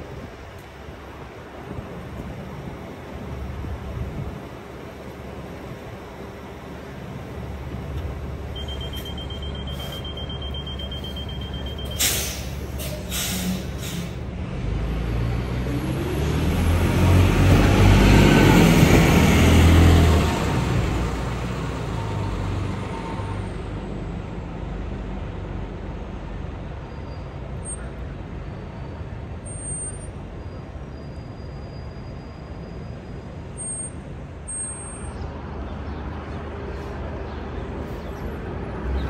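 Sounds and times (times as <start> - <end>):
bus diesel engine accelerating: 0.0 - 39.0
high beeping: 8.5 - 12.6
air brakes hissing: 8.9 - 14.3.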